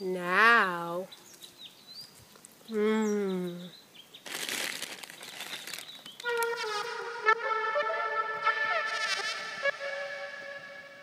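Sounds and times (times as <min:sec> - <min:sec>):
woman humming mmm: 0:02.7 - 0:03.7
rustling: 0:04.2 - 0:06.9
synthesizer music: 0:06.2 - 0:11.0.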